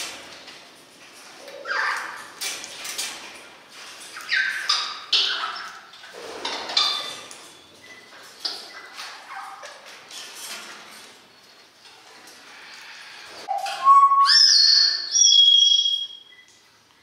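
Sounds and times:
parrot whistling: 13.5s - 16.4s.

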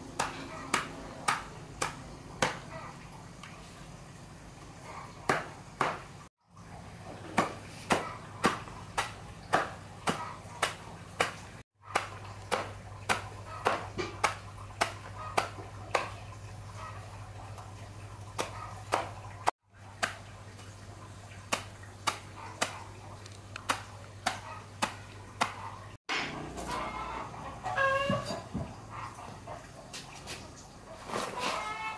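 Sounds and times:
machete chopping stems on wood: 5.3s - 6.1s, 7.3s - 16.2s, 21.5s - 22.8s, 23.6s - 26.8s.

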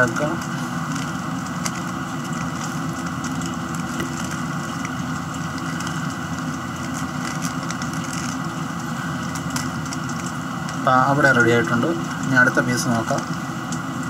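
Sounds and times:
engine-like hum: 0.0s - 14.0s.

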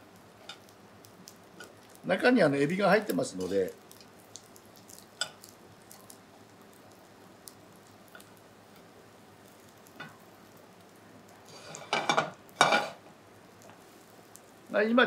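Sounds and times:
food sizzling in oil: 0.0s - 15.0s.

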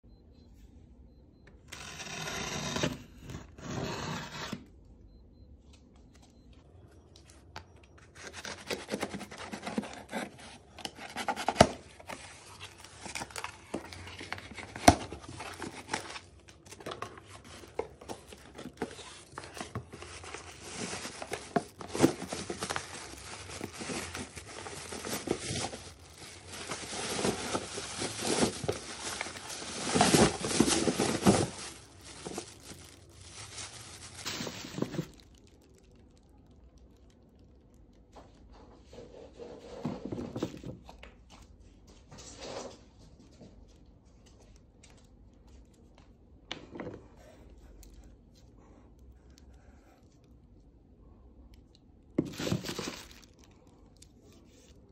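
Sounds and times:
cardboard scraping and rustling: 1.8s - 4.6s, 8.2s - 32.8s, 33.9s - 35.2s, 52.2s - 53.2s
plastic bag crinkling: 12.1s - 38.0s, 52.2s - 54.9s.

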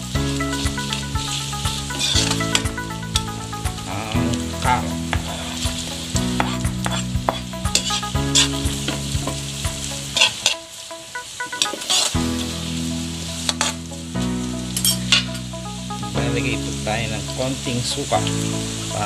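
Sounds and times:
background music: 0.0s - 19.0s
vegetables sizzling: 0.0s - 19.0s
spatula scraping a wok: 0.6s - 2.6s, 5.1s - 9.4s.

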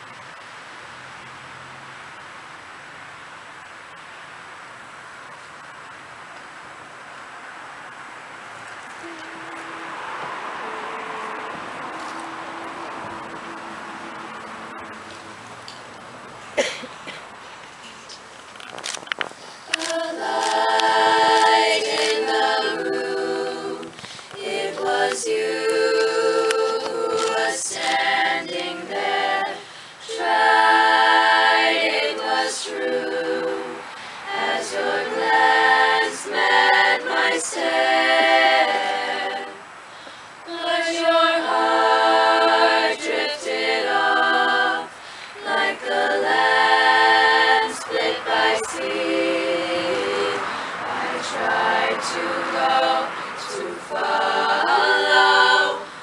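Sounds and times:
girls choir singing a cappella: 9.0s - 14.8s, 19.6s - 39.8s, 40.4s - 56.0s.

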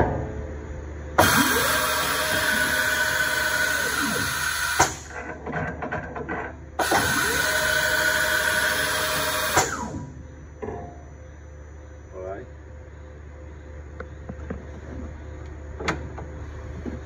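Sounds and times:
motor whine: 1.0s - 5.2s, 6.8s - 10.6s
compressed air hissing: 1.2s - 5.2s.

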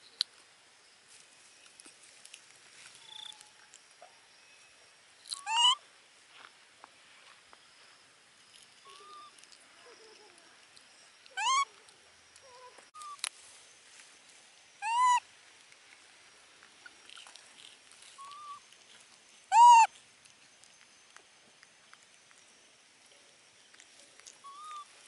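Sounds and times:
baby monkey coo calls: 5.3s - 5.8s, 8.8s - 10.4s, 11.3s - 11.8s, 14.8s - 15.2s, 18.2s - 18.6s, 19.5s - 19.9s, 24.3s - 25.0s.

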